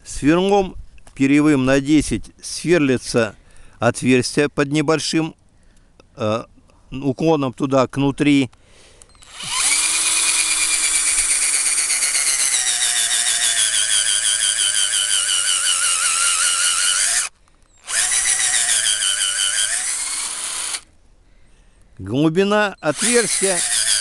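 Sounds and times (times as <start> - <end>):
cordless drill boring into wood: 9.1 - 20.8, 22.8 - 24.0.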